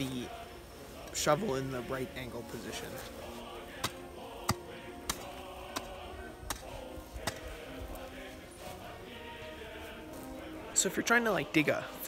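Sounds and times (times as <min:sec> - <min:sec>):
background music: 0:00.0 - 0:12.0
shovel blade hacking into dirt: 0:03.8 - 0:05.9, 0:06.5 - 0:07.5.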